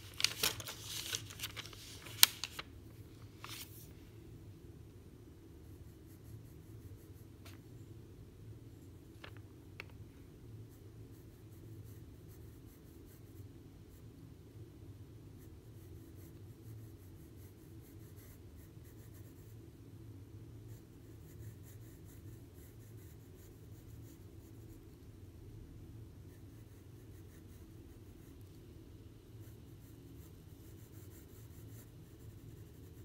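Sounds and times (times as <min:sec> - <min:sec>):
low steady hum: 0:00.0 - 0:33.0
pencil scratching on paper: 0:29.4 - 0:33.0.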